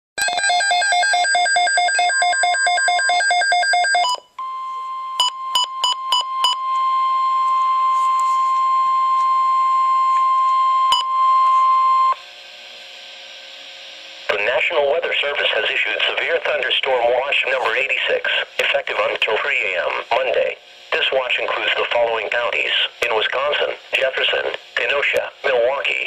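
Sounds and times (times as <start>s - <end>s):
steady warning alarm tone: 0.2s - 12.2s.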